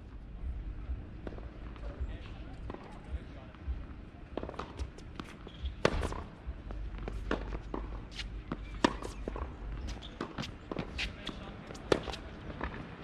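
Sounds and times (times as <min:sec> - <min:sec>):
footsteps on court: 0:01.2 - 0:13.0
tennis balls struck by rackets: 0:04.3 - 0:13.0.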